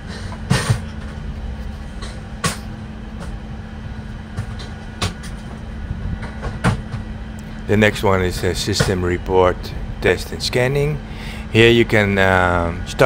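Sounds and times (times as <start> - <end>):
cockpit fans humming: 0.0 - 13.0.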